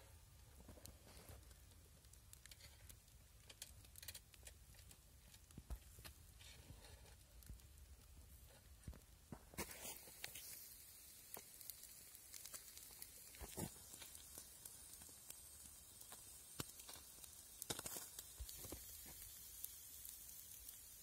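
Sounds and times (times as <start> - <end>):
embers crackling and popping: 0.0 - 21.0
fish sizzling on a grill: 0.7 - 21.0.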